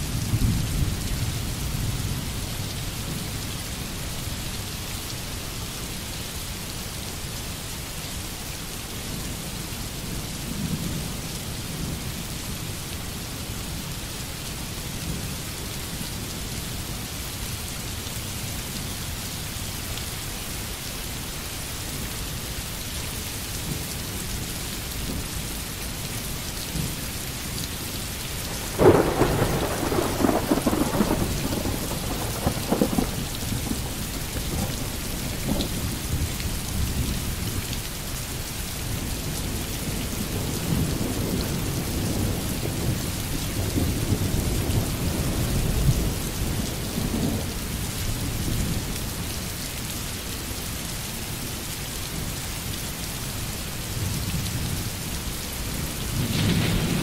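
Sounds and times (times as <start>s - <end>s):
steady rain: 0.0s - 57.0s
thunder clap and rumble: 28.5s - 36.2s, 56.1s - 57.0s.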